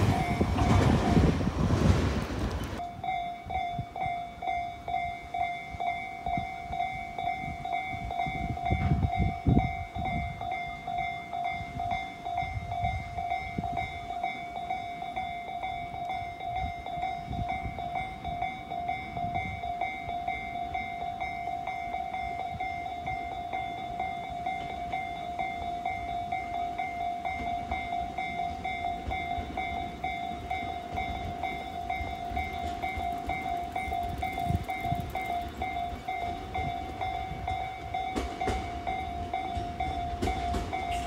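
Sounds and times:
level crossing warning bell: 0.0 - 1.5, 2.7 - 41.0
wind rumble on microphone: 0.0 - 4.2, 5.8 - 14.0, 30.9 - 37.9.

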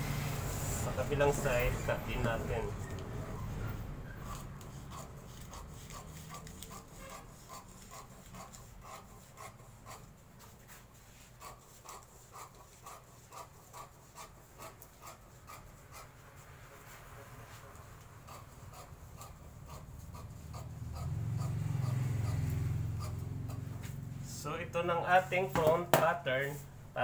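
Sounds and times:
scissors snipping paper: 4.2 - 10.0.

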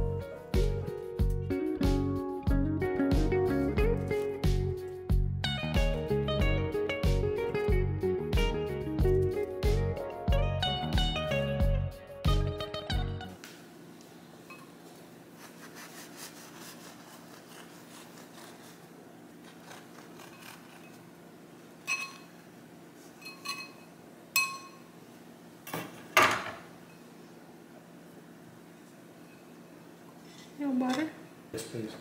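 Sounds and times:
knife sawing through bagel: 15.3 - 20.9
knife clinking on ceramic plate: 21.8 - 22.3, 23.2 - 24.9.

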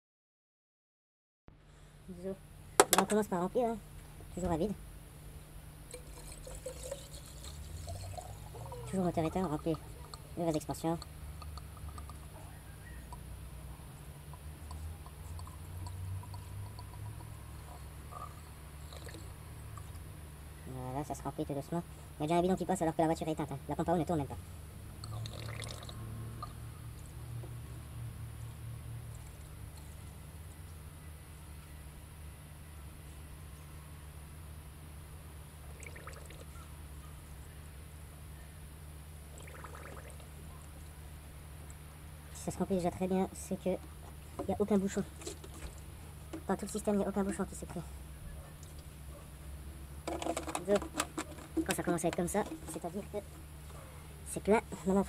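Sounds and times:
liquid pouring from plastic jug: 5.9 - 9.6, 18.9 - 19.4, 25.0 - 26.0, 39.4 - 40.3.

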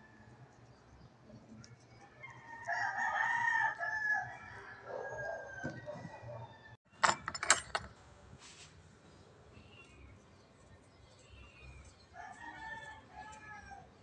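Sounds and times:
rooster crowing: 2.0 - 6.8, 12.2 - 13.9.

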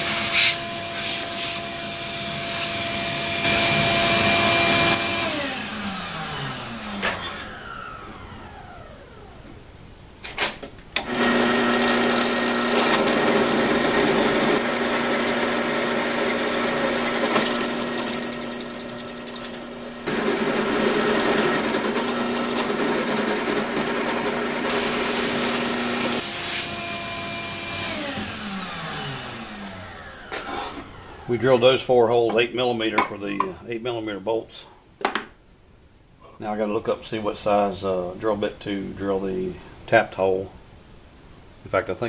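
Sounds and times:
drill press motor running: 11.0 - 31.3.

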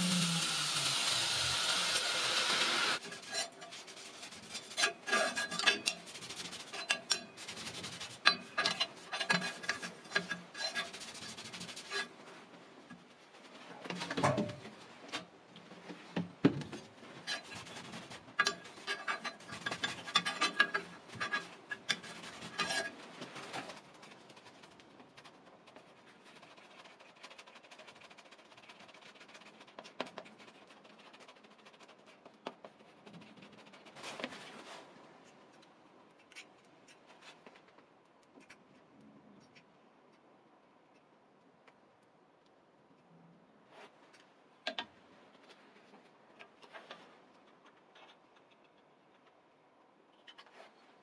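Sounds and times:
rag wiping metal blade: 0.0 - 12.1, 18.4 - 23.0
quiet scraping on cardboard: 3.0 - 13.7.

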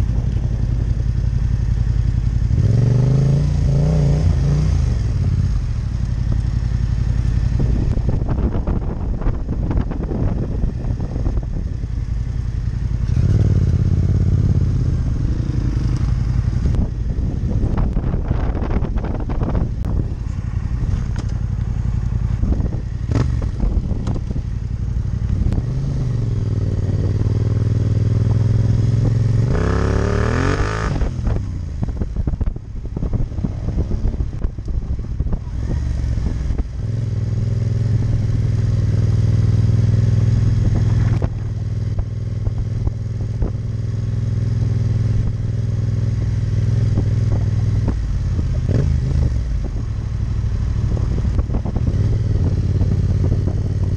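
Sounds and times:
motorcycle engine running: 0.0 - 53.9.

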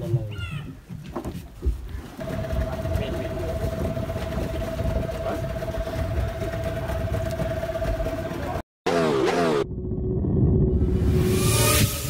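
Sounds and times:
outboard motor running: 2.2 - 8.6.

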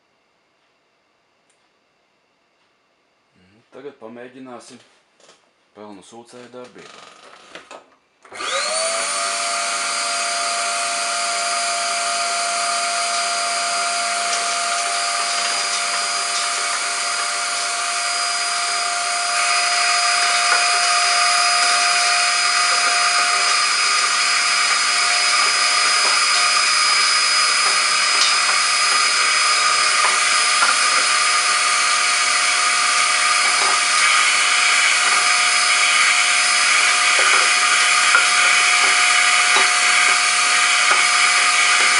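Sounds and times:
vacuum cleaner motor whine: 8.2 - 41.9
vacuum hose sucking ash: 8.3 - 41.9.

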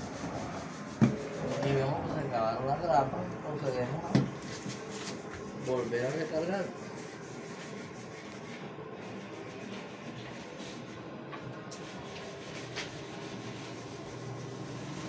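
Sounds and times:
workshop hum: 0.0 - 15.0.

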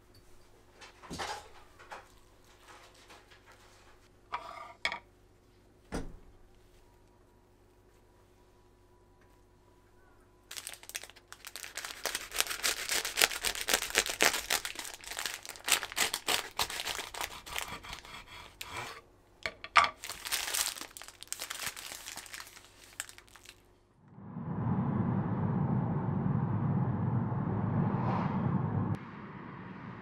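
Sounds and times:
plastic wrap and paper crinkling: 10.5 - 18.0, 20.0 - 23.8
knife sawing through sandwich: 16.4 - 19.0.

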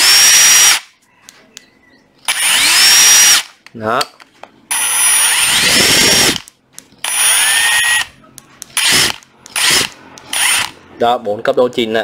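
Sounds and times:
impact driver whining: 0.0 - 0.8, 2.3 - 3.5, 4.7 - 8.1, 8.7 - 10.8.

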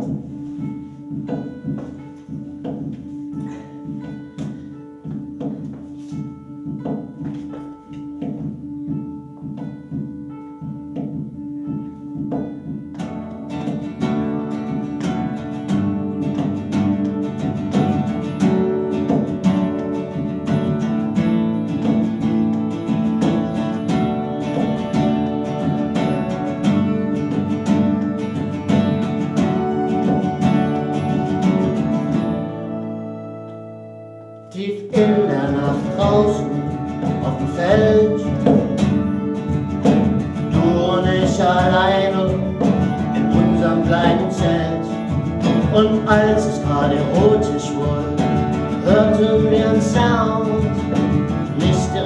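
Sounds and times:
acoustic band with accordion: 0.0 - 52.0
acoustic guitar picking: 0.0 - 52.0.

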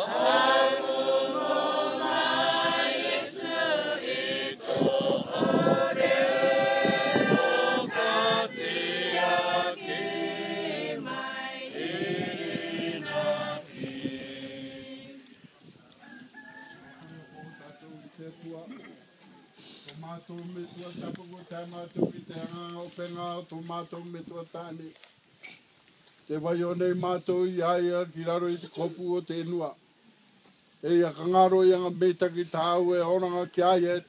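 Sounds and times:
crowd singing a hymn unaccompanied: 0.0 - 15.5.

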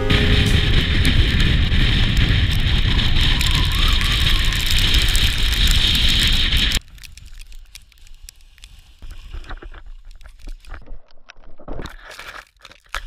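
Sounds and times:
strong wind buffeting microphone: 0.0 - 6.8.

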